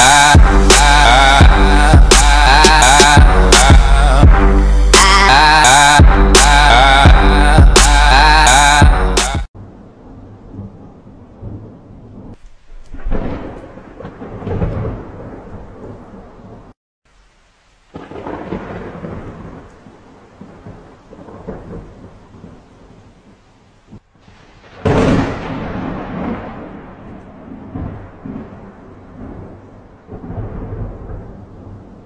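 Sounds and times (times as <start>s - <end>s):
thunder rumbling: 9.6s - 16.8s, 17.9s - 23.1s, 23.9s - 32.0s
steady rain: 9.6s - 32.0s.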